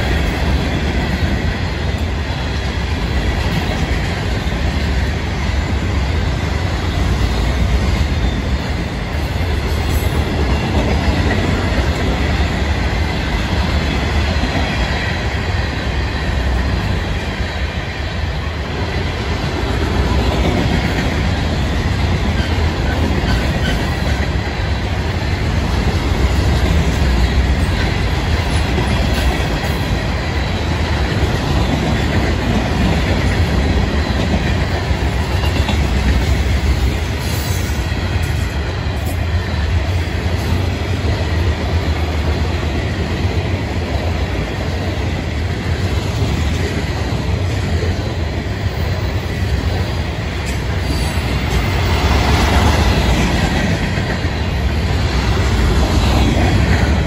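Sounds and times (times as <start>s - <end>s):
freight train rolling past: 0.0s - 57.0s
wheels clacking over rail joints: 18.8s - 39.2s.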